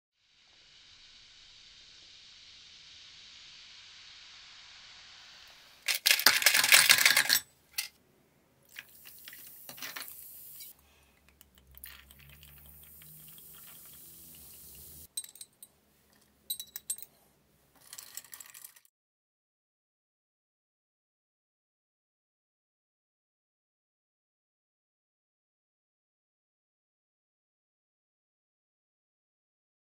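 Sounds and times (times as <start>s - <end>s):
liquid pouring with fizz: 0.2s - 7.2s, 8.7s - 10.7s, 11.4s - 15.1s, 17.8s - 18.9s
ice cubes clattering into glass: 5.9s - 7.9s, 11.7s - 13.9s, 17.8s - 18.9s
berries clinking in glass: 17.8s - 18.8s.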